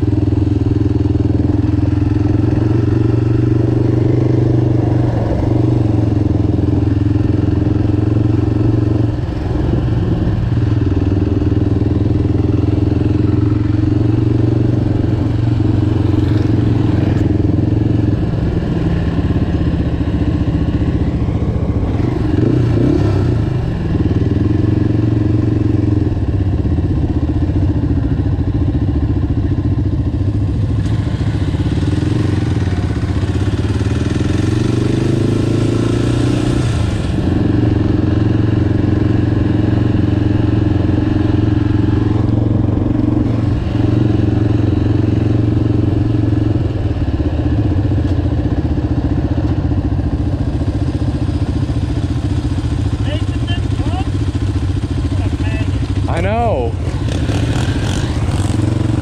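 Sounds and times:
vehicle engine under throttle: 0:00.0 - 0:59.0.

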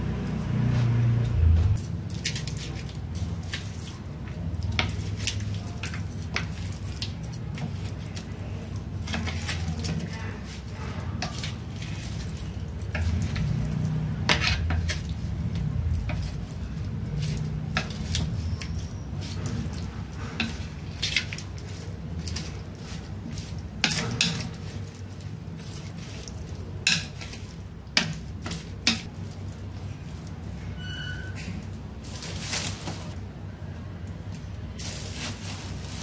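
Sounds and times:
low background hum: 0:00.0 - 0:36.0
chopsticks tapping on a plate: 0:26.8 - 0:29.1.

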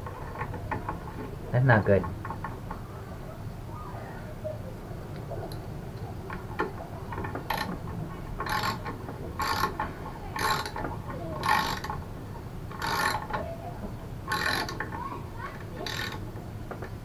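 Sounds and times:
ratchet wrench clicking: 0:07.5 - 0:07.7, 0:08.4 - 0:09.8, 0:10.4 - 0:10.8, 0:11.4 - 0:12.0, 0:12.7 - 0:13.4, 0:14.3 - 0:14.9, 0:15.8 - 0:16.2.

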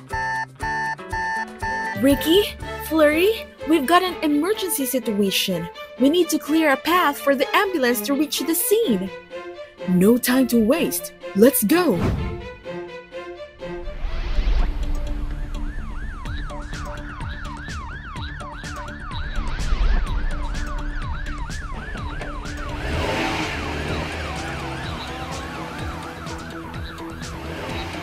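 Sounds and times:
background music: 0:00.0 - 0:28.0
siren yelp: 0:00.1 - 0:02.6, 0:15.3 - 0:28.0.

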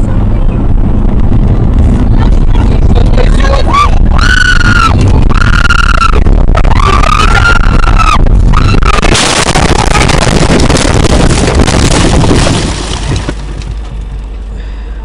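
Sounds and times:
person screaming: 0:03.5 - 0:09.0
car crashing: 0:08.6 - 0:14.3
glass breaking: 0:09.0 - 0:13.6.

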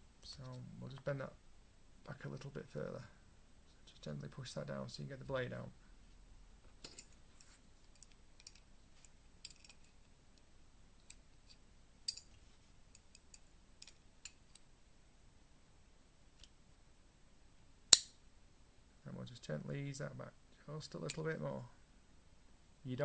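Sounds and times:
light clicks of metal parts: 0:06.8 - 0:14.7, 0:20.9 - 0:21.4.

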